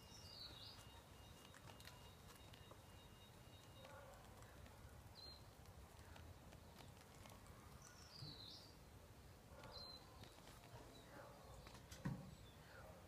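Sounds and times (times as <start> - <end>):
bird chirps: 0.0 - 4.5, 9.6 - 11.7.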